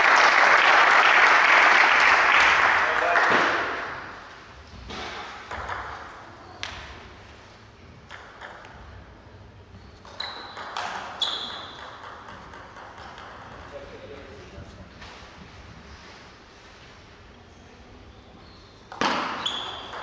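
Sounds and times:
applause: 0:00.0 - 0:04.0
shoe squeaks: 0:09.8 - 0:11.8, 0:18.4 - 0:20.0
table tennis ball clicking: 0:10.0 - 0:13.7.

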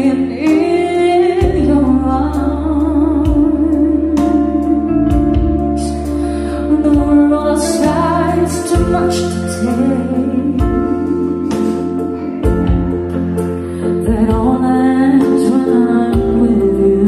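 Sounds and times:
song over loudspeakers: 0:00.0 - 0:17.0.

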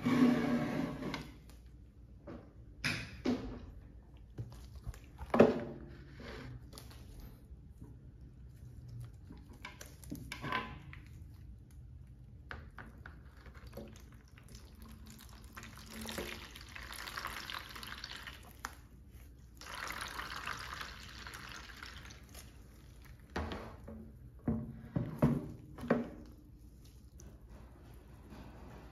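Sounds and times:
liquid splashing into plastic tray: 0:12.7 - 0:24.0.

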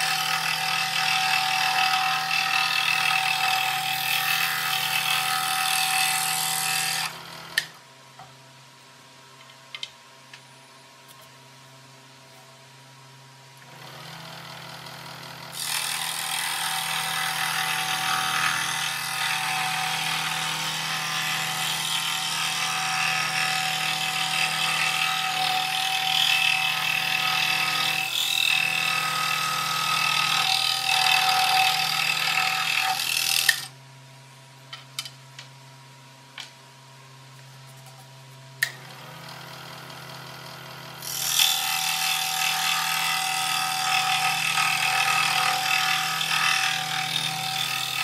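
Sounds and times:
scroll saw cutting wood: 0:00.0 - 0:07.8, 0:13.6 - 0:33.8, 0:38.6 - 0:48.0.

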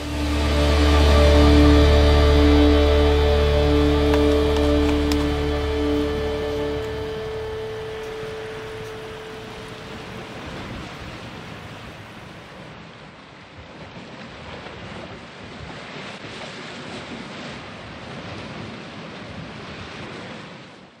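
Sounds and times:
sea surf: 0:00.0 - 0:13.3
wind: 0:00.0 - 0:21.0.

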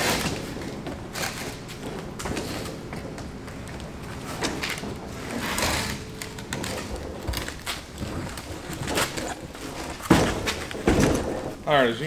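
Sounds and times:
knocks and thuds: 0:00.0 - 0:11.6
wood scraping on wood: 0:00.0 - 0:11.7.

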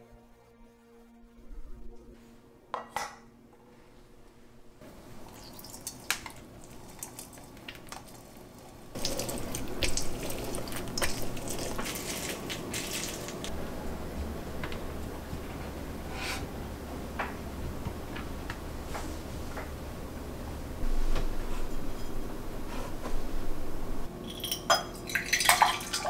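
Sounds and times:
low steady hum: 0:00.0 - 0:26.0
juice squelching and dripping: 0:05.2 - 0:13.5.

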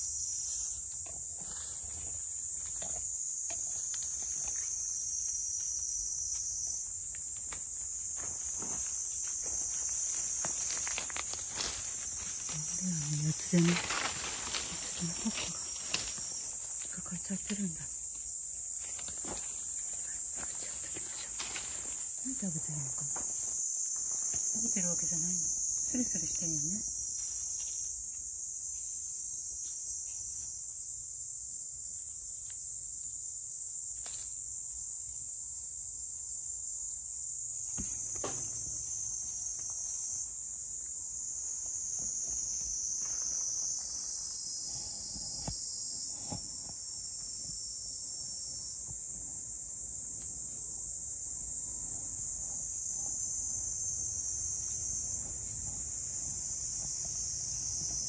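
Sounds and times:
insect chorus buzzing: 0:00.0 - 0:58.0
rustling dry leaf litter: 0:09.4 - 0:16.7.

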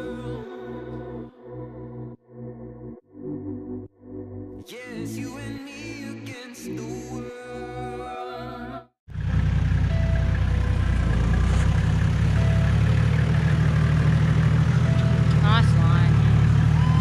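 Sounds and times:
car engine droning: 0:09.1 - 0:17.0.

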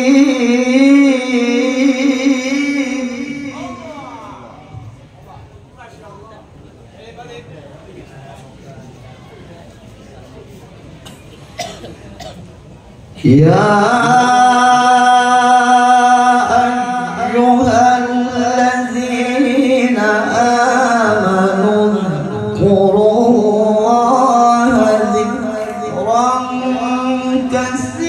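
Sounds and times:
man reciting melodically into microphone: 0:00.0 - 0:05.0, 0:13.1 - 0:28.0.

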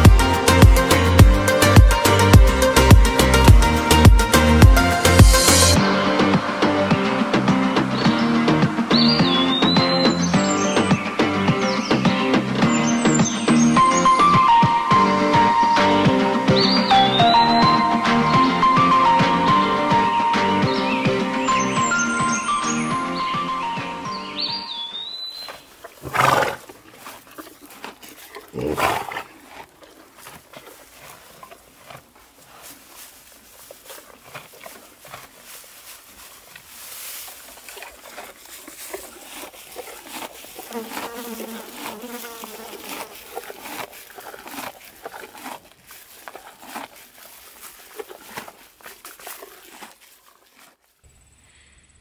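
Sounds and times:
horse grazing grass: 0:00.0 - 0:51.0
horse snorting: 0:25.5 - 0:50.8
flies buzzing: 0:38.9 - 0:43.8.

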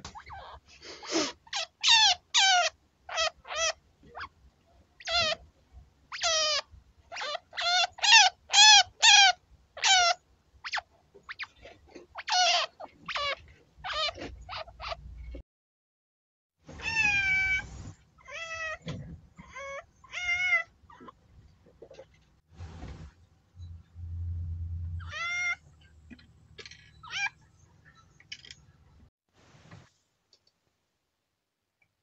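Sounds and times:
chinchilla kit squeaking: 0:00.1 - 0:00.6, 0:01.5 - 0:04.4, 0:05.0 - 0:05.4, 0:06.1 - 0:15.3, 0:16.8 - 0:21.2, 0:25.0 - 0:25.7, 0:26.6 - 0:28.6.

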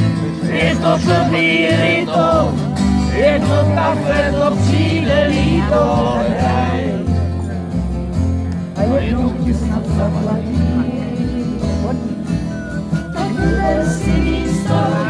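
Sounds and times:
acoustic guitar: 0:00.0 - 0:15.0
double bass low notes: 0:00.0 - 0:15.0
person singing: 0:13.0 - 0:15.0.

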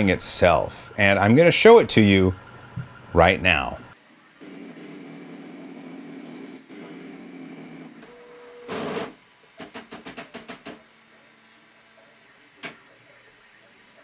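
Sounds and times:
printer stepper motors buzzing: 0:00.0 - 0:09.1.

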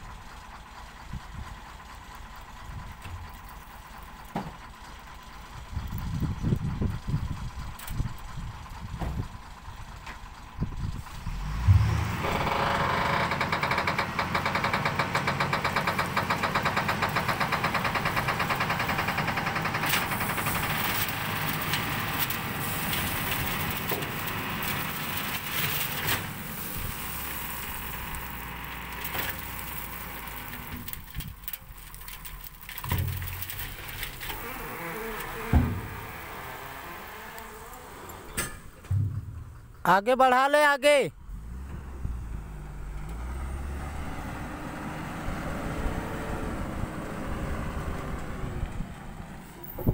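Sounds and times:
diesel truck engine revving: 0:00.9 - 0:32.2, 0:32.8 - 0:39.8, 0:41.2 - 0:49.9
soil sliding out: 0:14.2 - 0:38.4
short thumps: 0:38.4 - 0:39.7.

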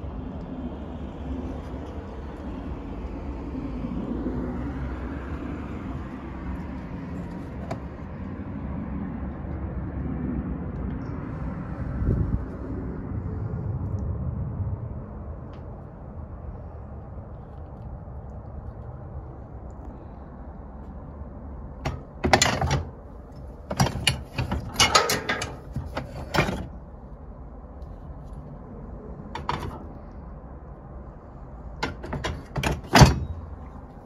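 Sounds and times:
metal parts clanking and rattling: 0:21.8 - 0:26.8, 0:29.4 - 0:29.9, 0:31.8 - 0:33.6.

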